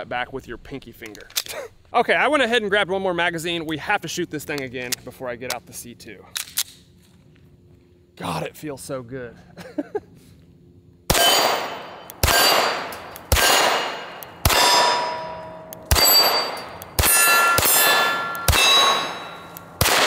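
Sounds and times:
pistol shots: 0:11.1 - 0:20.0
steel target clanging: 0:11.1 - 0:20.0.

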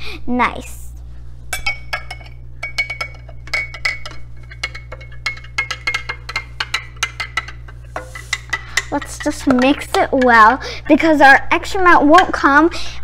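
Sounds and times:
metal spoon clinking on glass: 0:01.6 - 0:10.3.

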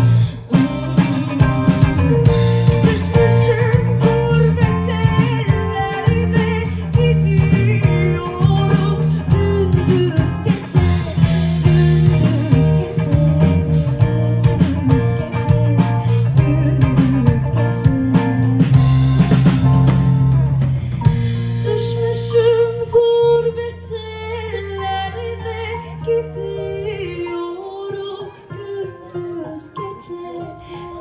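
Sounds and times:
woman singing: 0:00.0 - 0:19.7, 0:21.0 - 0:31.0
drum kit: 0:00.0 - 0:23.6
bass guitar: 0:00.0 - 0:28.0
electric guitar: 0:00.0 - 0:31.0.

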